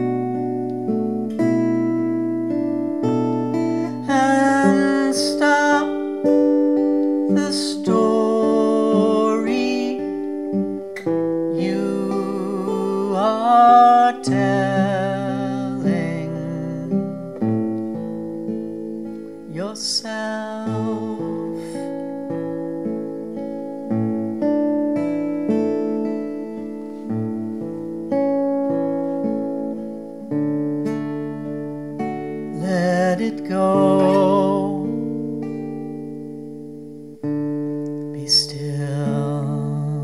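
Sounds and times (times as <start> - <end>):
acoustic guitar: 0.0 - 40.0
woman singing: 3.9 - 6.3, 7.3 - 10.4, 11.5 - 17.4, 19.5 - 21.9, 32.5 - 34.9, 38.1 - 40.0.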